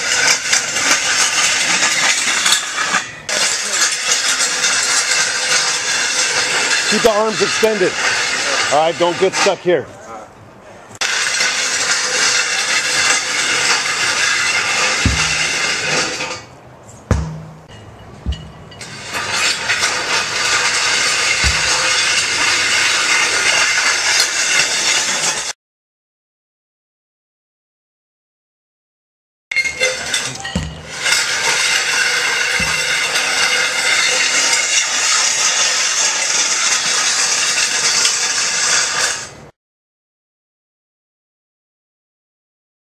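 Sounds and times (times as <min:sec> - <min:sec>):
metal sled scraping on asphalt: 0:00.0 - 0:10.0, 0:11.0 - 0:25.6, 0:29.5 - 0:39.5
low thuds: 0:15.0 - 0:15.9, 0:17.0 - 0:19.1, 0:21.4 - 0:22.4, 0:32.6 - 0:33.2
dull thump: 0:15.1 - 0:15.9, 0:17.1 - 0:18.8, 0:21.4 - 0:22.1, 0:30.6 - 0:31.1, 0:32.6 - 0:33.0.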